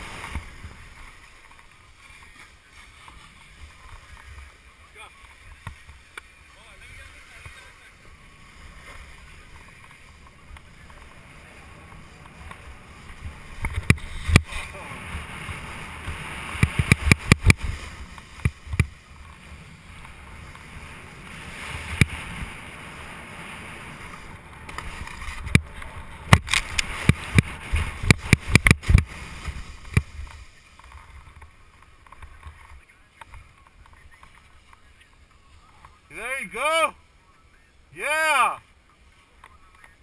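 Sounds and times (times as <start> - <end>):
snowboard scraping over snow: 0.0 - 37.2
board clacking over bumps: 15.3 - 19.4, 23.9 - 34.4.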